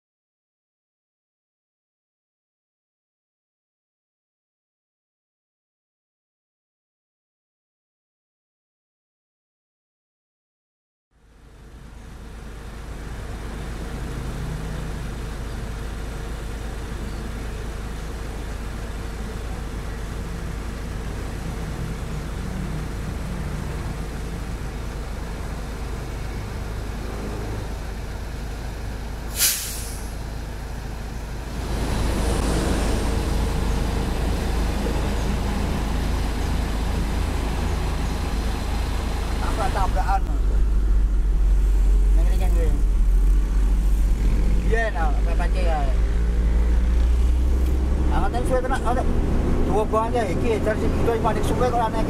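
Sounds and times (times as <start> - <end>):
diesel engines rumbling: 11.2 - 52.0
air brake hiss: 29.3 - 30.2.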